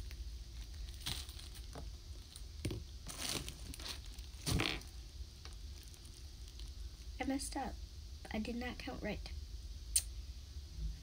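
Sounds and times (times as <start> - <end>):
plastic wrapping crinkling: 0.0 - 7.1.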